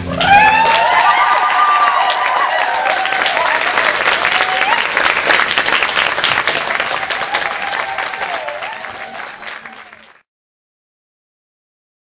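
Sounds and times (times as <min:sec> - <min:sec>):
long wavering cheer: 0:00.0 - 0:05.2, 0:06.4 - 0:10.1
audience applauding: 0:00.0 - 0:10.3.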